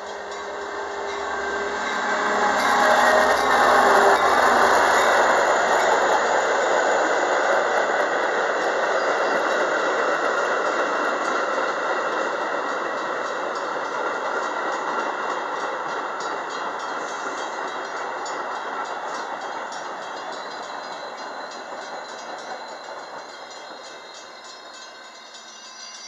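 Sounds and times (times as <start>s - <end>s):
faint high squeal: 0.0s - 6.0s
train wheels rolling on rails: 0.0s - 26.0s.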